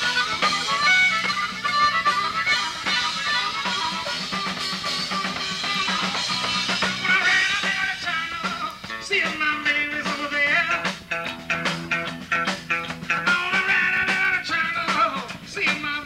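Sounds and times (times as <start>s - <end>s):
harmonica: 0.0s - 9.0s
electric guitar: 0.0s - 16.0s
person singing: 1.7s - 11.0s, 13.2s - 16.0s.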